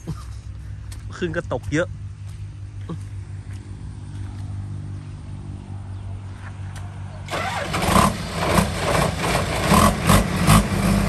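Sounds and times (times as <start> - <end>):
combine harvester engine running: 6.5 - 11.0.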